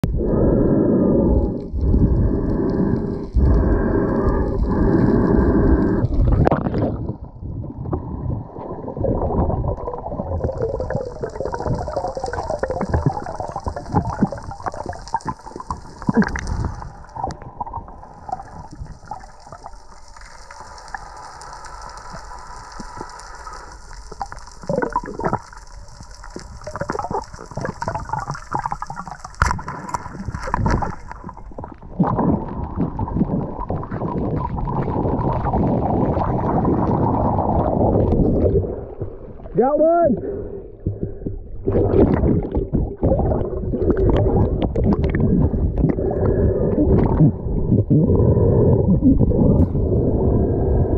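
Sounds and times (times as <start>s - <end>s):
underwater rushing and gurgling: 0.0s - 50.9s
underwater knocks and thumps: 6.3s - 17.4s, 26.7s - 37.0s, 40.8s - 48.1s
thin steady hiss: 18.2s - 28.4s.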